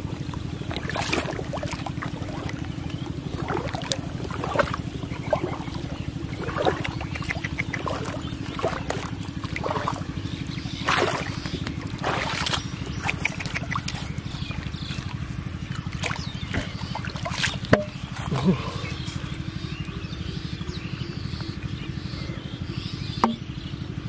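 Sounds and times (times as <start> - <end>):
water splashing: 0.0 - 19.0
low engine puttering: 0.0 - 24.0.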